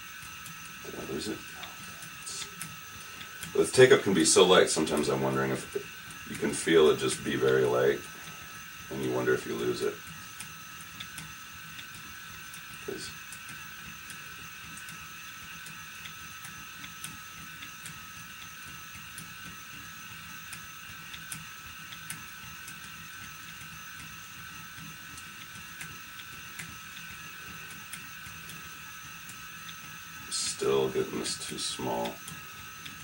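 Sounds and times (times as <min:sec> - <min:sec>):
electric spinning wheel motor whine: 0:00.0 - 0:33.0
faint ticks: 0:08.4 - 0:33.0.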